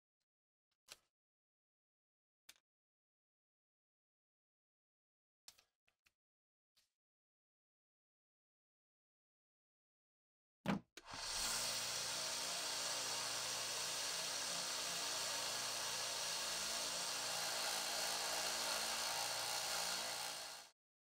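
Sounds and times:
belt sander running: 11.1s - 20.8s.

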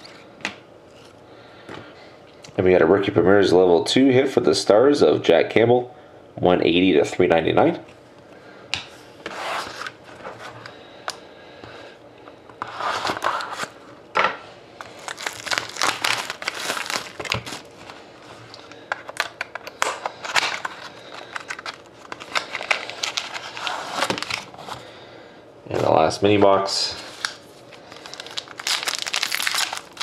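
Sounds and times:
foil wrappers crinkling: 14.8s - 24.8s, 26.8s - 30.0s.

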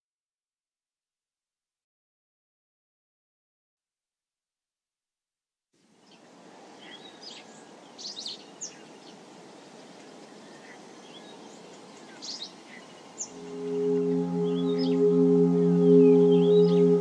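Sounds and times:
low rush of background noise: 5.8s - 17.0s.

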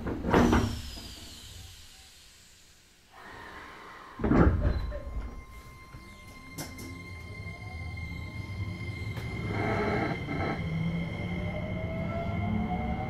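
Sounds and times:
low hum: 4.7s - 13.0s
electric train running: 5.4s - 13.0s.

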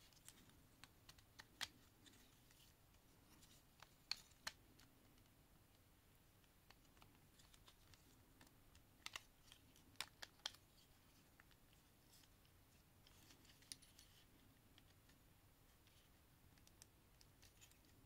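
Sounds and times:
faint handling noise: 0.0s - 18.0s.

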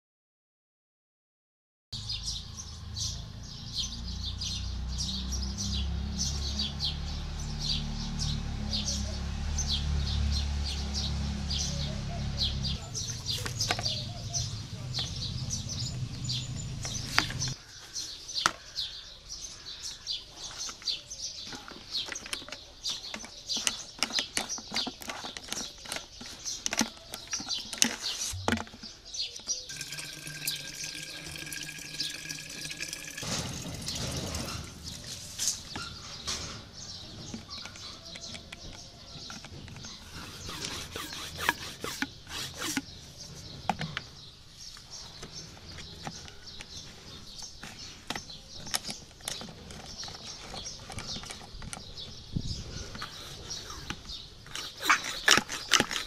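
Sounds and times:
water splashing into plastic tank: 29.7s - 34.7s.

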